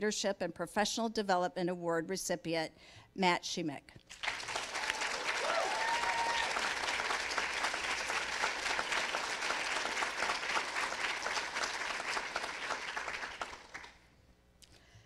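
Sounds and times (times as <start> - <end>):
audience applauding: 4.1 - 14.0.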